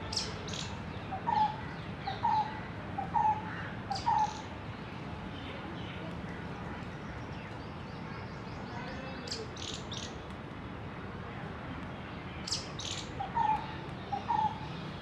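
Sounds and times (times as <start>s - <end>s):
outdoor background noise: 0.0s - 15.0s
small birds chirping: 0.1s - 3.2s.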